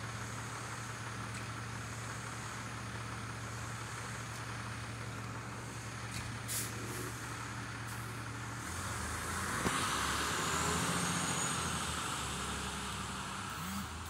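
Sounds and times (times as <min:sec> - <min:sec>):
engine idling: 0:00.0 - 0:09.2
road noise hiss: 0:00.0 - 0:14.0.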